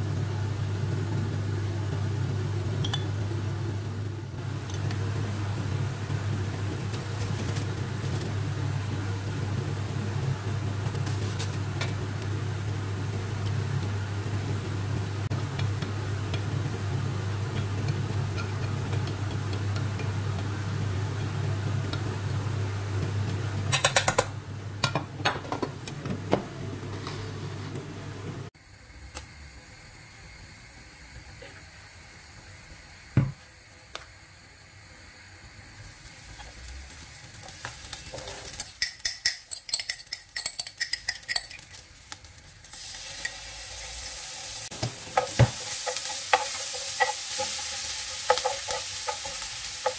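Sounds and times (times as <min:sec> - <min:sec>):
fan motor humming: 0:00.0 - 0:29.7, 0:40.4 - 0:49.9.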